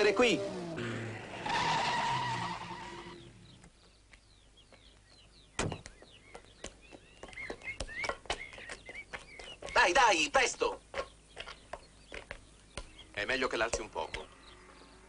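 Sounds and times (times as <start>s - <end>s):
car engine driving off: 0.0s - 3.7s
small birds chirping: 2.6s - 15.0s
sharp knocks: 5.6s - 6.1s.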